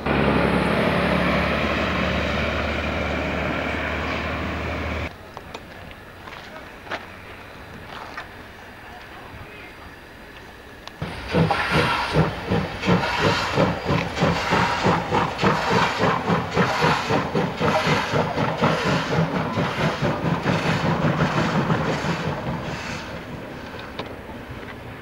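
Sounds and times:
steam locomotive chuffing: 0:00.0 - 0:05.1, 0:11.0 - 0:25.0
steam hissing: 0:11.0 - 0:24.6.

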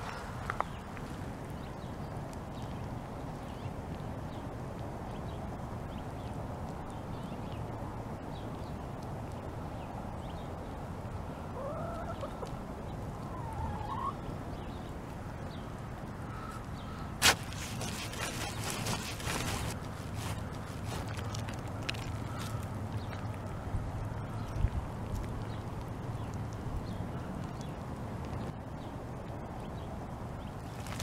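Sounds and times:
outdoor ambience: 0:00.0 - 0:31.0
garden fork crunching into mulch: 0:17.2 - 0:22.6, 0:30.7 - 0:31.0.

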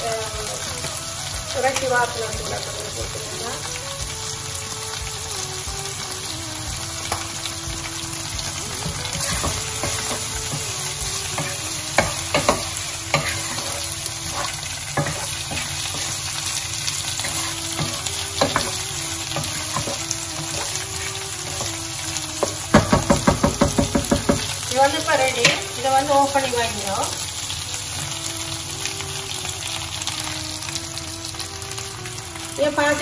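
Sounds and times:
chicken sizzling in a pot: 0:00.0 - 0:33.0
wooden spoon scraping a pot: 0:11.4 - 0:16.3, 0:19.4 - 0:21.8.

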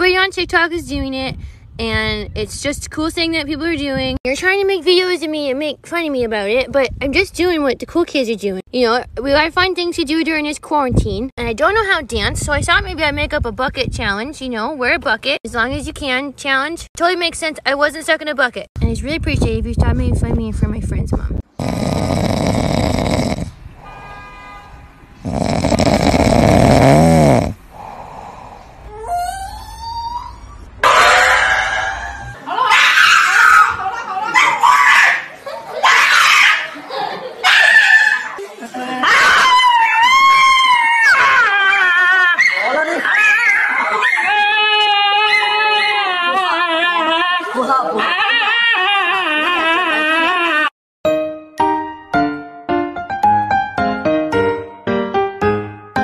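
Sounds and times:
cat snoring: 0:21.6 - 0:23.6, 0:25.2 - 0:28.4.

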